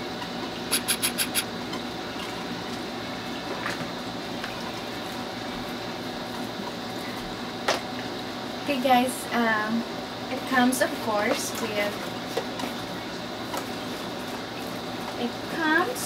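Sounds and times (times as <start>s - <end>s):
faint hum: 0.0s - 12.2s.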